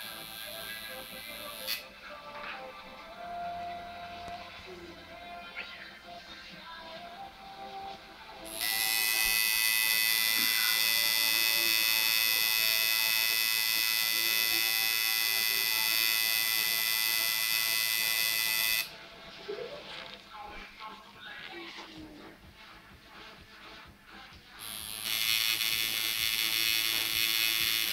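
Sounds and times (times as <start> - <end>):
tattoo machine buzzing: 0.0 - 1.9, 8.5 - 18.9, 24.6 - 27.9.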